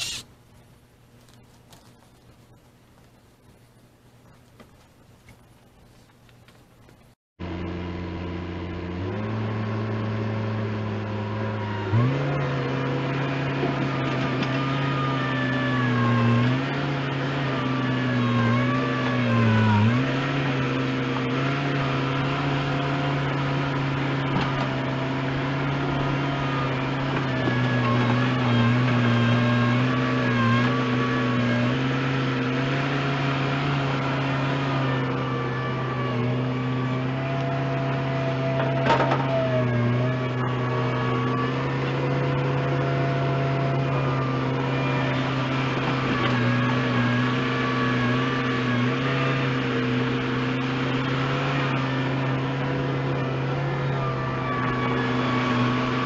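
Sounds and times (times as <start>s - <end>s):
bucket digging dirt: 0.0s - 0.3s
diesel engine revving: 0.0s - 0.3s, 7.4s - 56.0s.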